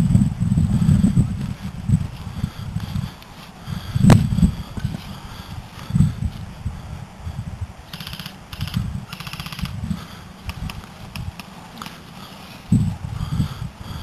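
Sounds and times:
camera handling noise: 0:07.9 - 0:09.8, 0:10.4 - 0:12.7
rapid airsoft gunfire: 0:08.0 - 0:09.7.

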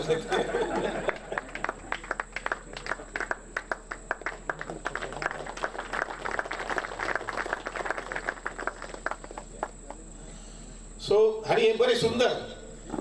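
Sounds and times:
audience applauding: 0:01.0 - 0:10.0.

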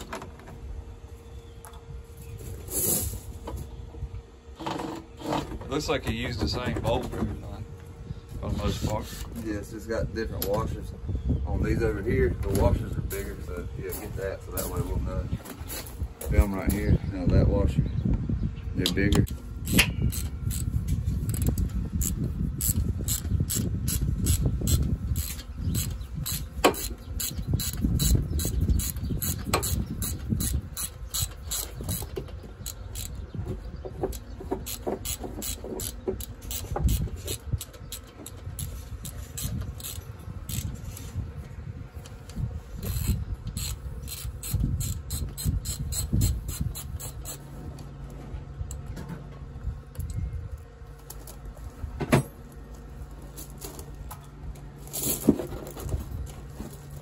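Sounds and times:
socket ratchet clicking: 0:42.8 - 0:47.4.

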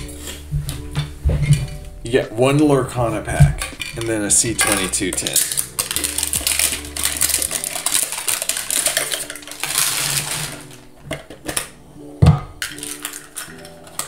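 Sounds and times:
foil wrapper crinkling: 0:04.7 - 0:11.7, 0:12.6 - 0:14.0.

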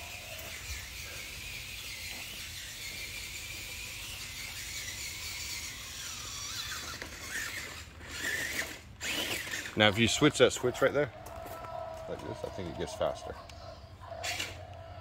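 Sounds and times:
toy truck electric motor whine: 0:00.0 - 0:10.4, 0:11.1 - 0:15.0.

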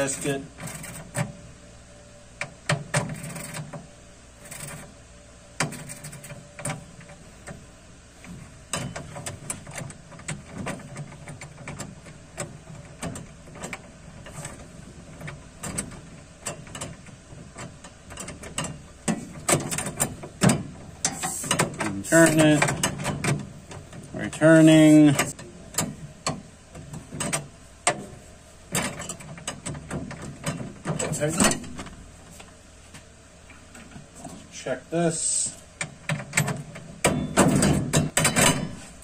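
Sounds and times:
metal clicks and knocks: 0:08.2 - 0:24.1, 0:25.0 - 0:32.5, 0:35.8 - 0:39.0.

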